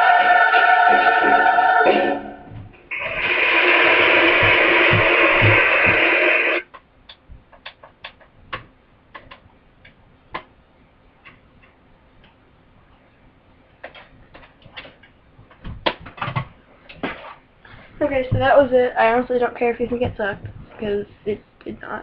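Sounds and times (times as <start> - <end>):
choir singing recording: 0.0 - 6.6.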